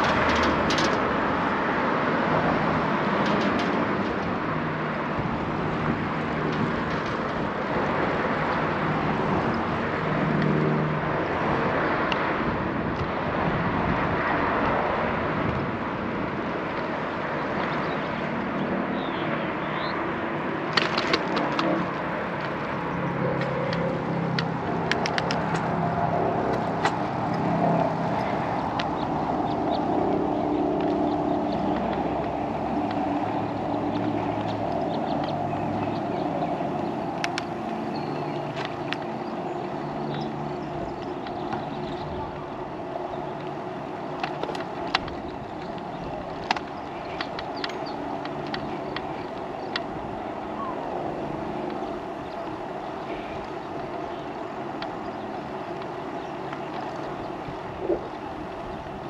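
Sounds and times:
sharp clicks and rattles: 0.0 - 8.7, 20.6 - 50.1
vehicles passing: 0.0 - 59.0.

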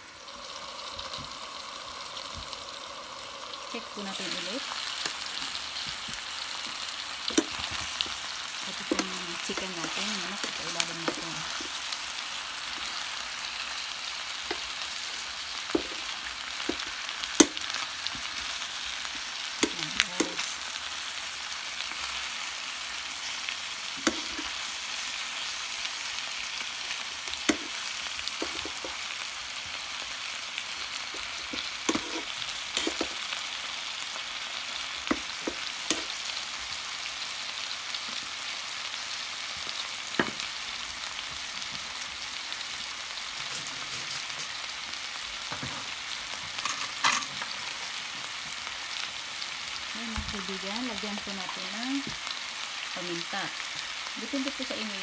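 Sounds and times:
meat sizzling in pan: 0.0 - 55.0
utensils clinking against pan: 43.4 - 44.6, 46.6 - 47.5.

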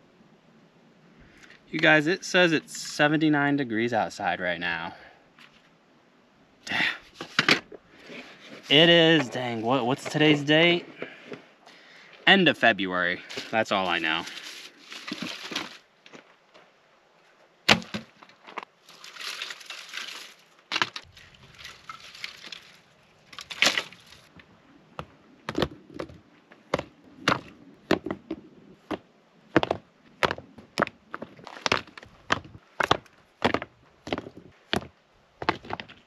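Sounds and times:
items handled in plastic bin: 13.2 - 15.8, 18.9 - 24.2
plastic bag rustling: 13.2 - 15.9, 18.8 - 24.3
rocks and wood knocking: 17.7 - 18.7, 23.3 - 36.0.

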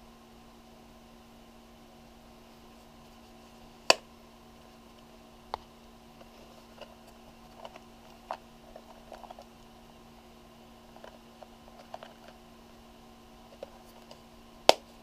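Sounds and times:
faint steady hum: 0.0 - 15.0
soft handling clicks and rustles: 4.6 - 9.7, 10.9 - 12.4.

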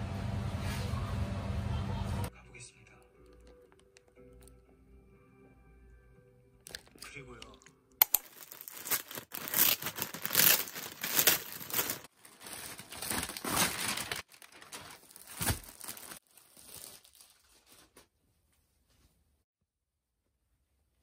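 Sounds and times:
plastic bag crinkling and tearing: 6.7 - 18.1.

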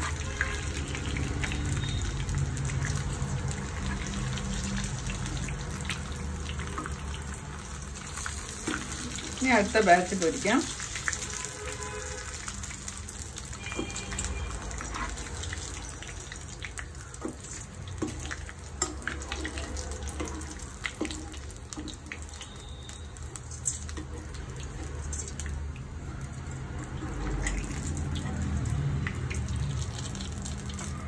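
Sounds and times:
oil sizzling in a pot: 0.0 - 31.0.

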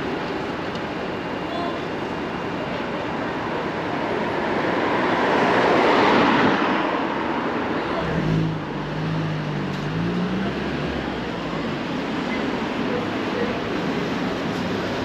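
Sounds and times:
low engine hum: 7.7 - 15.0.

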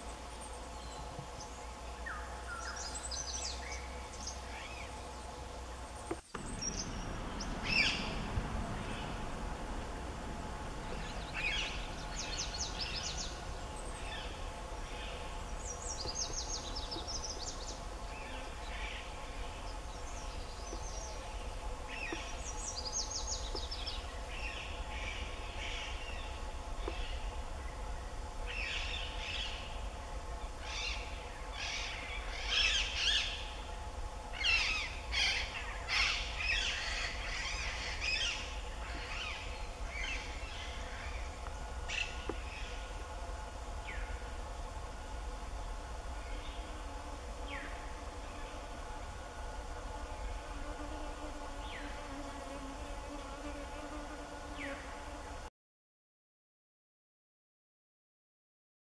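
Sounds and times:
bird scratchy calls and trills: 0.0 - 27.3
faint steady hum: 0.0 - 55.5.

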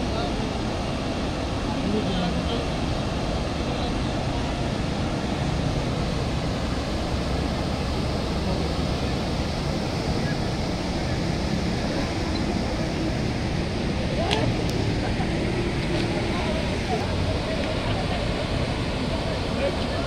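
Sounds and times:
river floodwater rushing: 0.0 - 20.0.

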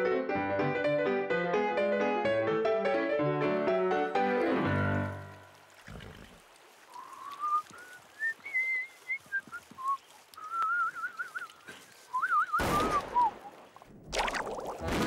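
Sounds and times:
person whistling a tune: 7.2 - 13.3.

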